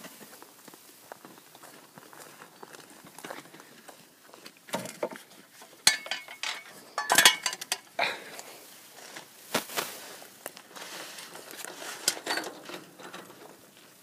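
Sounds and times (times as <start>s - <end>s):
footsteps on wood-chip mulch: 0.0s - 4.6s, 8.4s - 12.1s
wheelbarrow set down: 4.7s - 7.9s, 10.7s - 13.7s
metal garden tools clanking: 4.7s - 8.2s, 11.1s - 13.7s.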